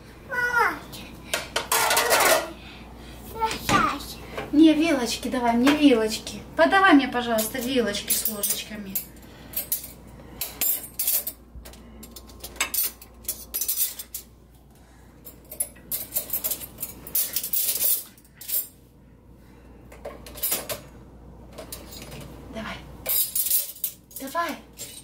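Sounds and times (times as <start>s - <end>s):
metal cutlery clinking: 7.4s - 14.3s, 15.3s - 18.8s, 23.0s - 25.0s.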